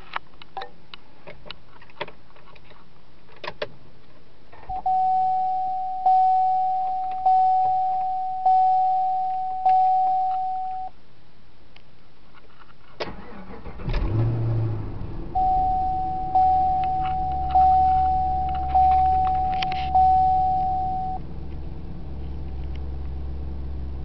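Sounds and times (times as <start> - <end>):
dashboard warning chime: 4.7 - 11.0, 15.3 - 21.2.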